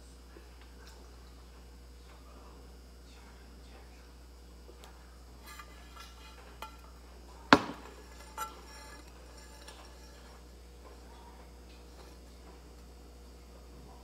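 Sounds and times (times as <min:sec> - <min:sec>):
plate clacking on hard surface: 0:05.4 - 0:06.9, 0:07.5 - 0:11.0
plate knocking: 0:05.4 - 0:11.0.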